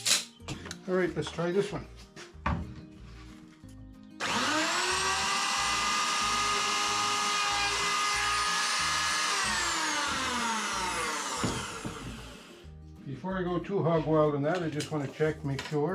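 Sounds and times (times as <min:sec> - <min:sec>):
router motor whine: 0:04.2 - 0:12.6.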